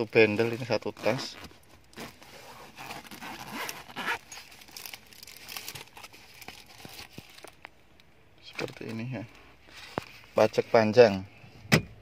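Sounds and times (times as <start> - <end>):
papers in plastic sleeves rustling: 0.0 - 7.8, 8.4 - 11.2
fabric pouch being unzipped: 0.9 - 7.1.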